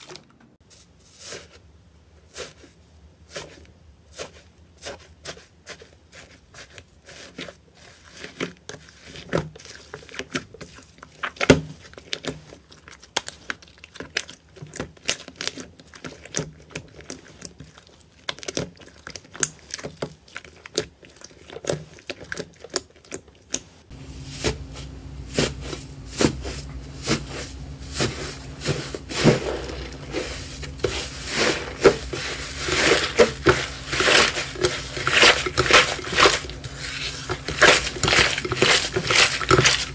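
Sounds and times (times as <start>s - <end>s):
slime squelching: 1.2s - 39.9s
steady low hum: 23.9s - 39.9s
slime crust crackling: 25.3s - 39.9s.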